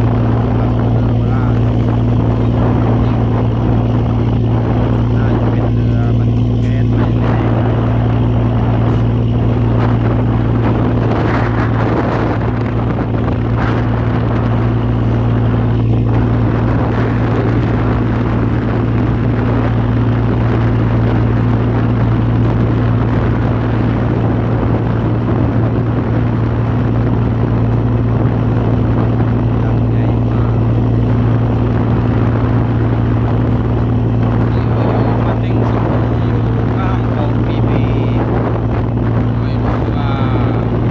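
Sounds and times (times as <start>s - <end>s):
boat engine droning: 0.0s - 40.9s
wind and water rushing: 0.0s - 40.9s.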